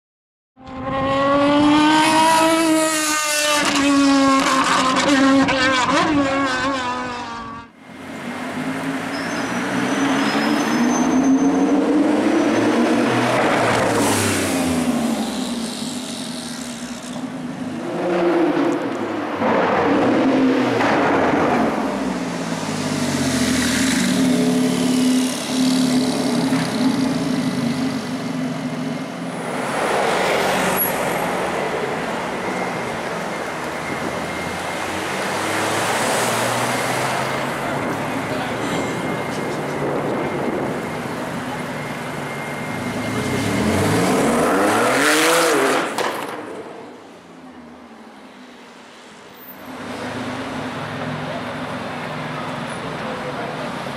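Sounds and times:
sports car revving and accelerating: 0:00.7 - 0:07.7, 0:42.9 - 0:46.0.

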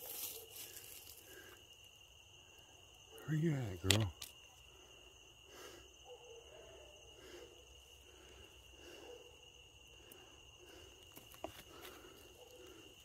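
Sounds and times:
rustles in brush: 0:00.0 - 0:01.2
insects trilling: 0:00.0 - 0:13.0.

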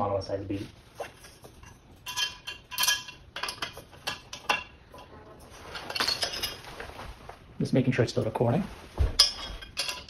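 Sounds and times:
metal bolts clinking: 0:01.6 - 0:05.1, 0:05.7 - 0:06.7, 0:09.2 - 0:10.0.

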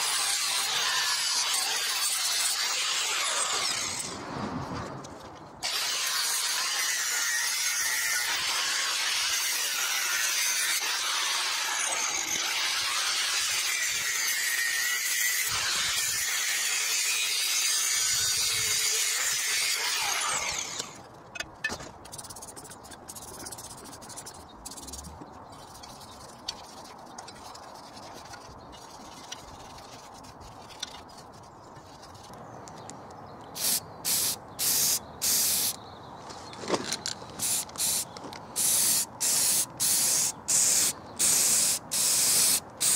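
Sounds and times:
angle grinder cutting steel: 0:00.0 - 0:04.1, 0:05.6 - 0:21.0
aerosol spray can hissing: 0:33.6 - 0:35.7, 0:38.6 - 0:42.9.

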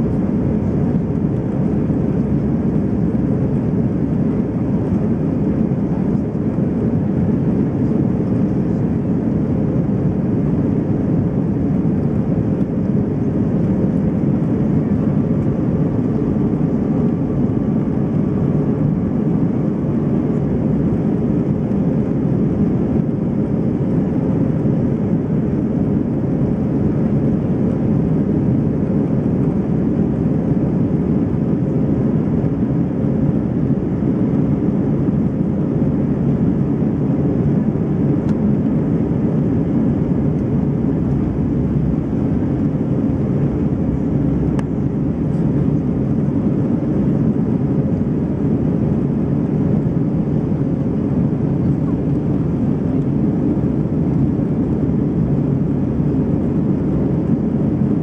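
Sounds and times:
airliner cabin engine rush: 0:00.0 - 0:58.0
faint steady hum: 0:00.0 - 0:58.0.

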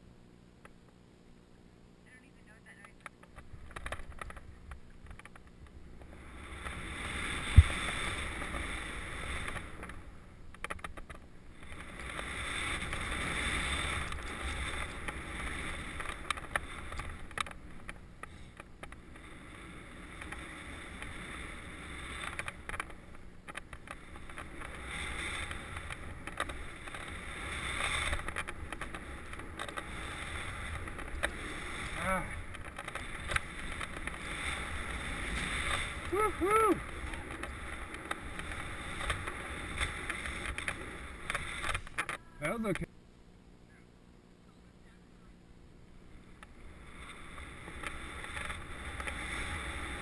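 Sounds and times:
skis swishing through snow: 0:05.8 - 0:10.4, 0:11.4 - 0:42.8, 0:46.2 - 0:50.0.

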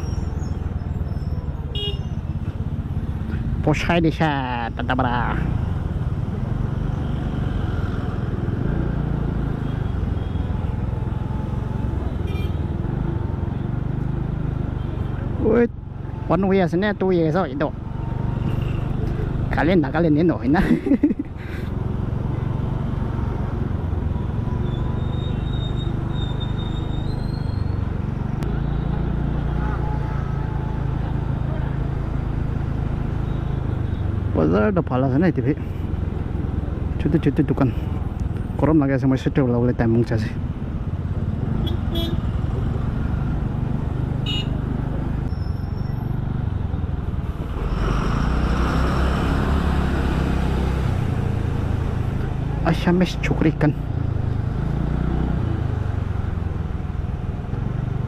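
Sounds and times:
road and wind noise: 0:00.0 - 0:58.0
traffic: 0:00.0 - 0:58.0.

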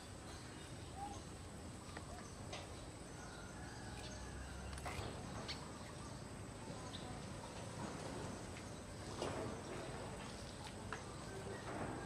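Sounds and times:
sparrows chirping: 0:00.0 - 0:11.9.

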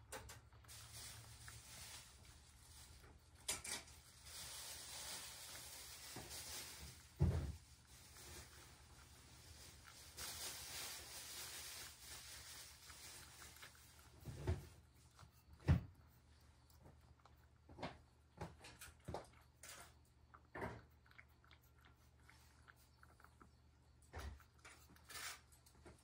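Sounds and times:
cat eating from ceramic bowl: 0:00.0 - 0:26.0
soft hiss: 0:00.6 - 0:15.0.

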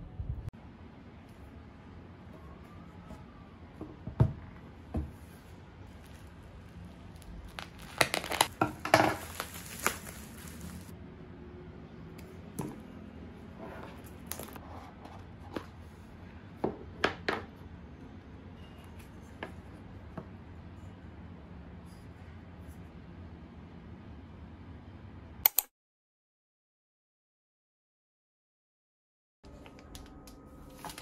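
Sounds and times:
plastic wrap crinkling: 0:05.8 - 0:10.9, 0:30.6 - 0:31.0
scissors snipping plastic film: 0:07.2 - 0:10.9.

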